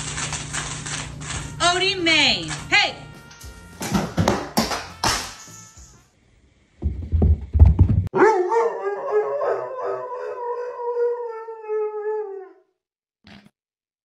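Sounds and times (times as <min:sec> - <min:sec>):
dog howling: 0:08.2 - 0:12.7.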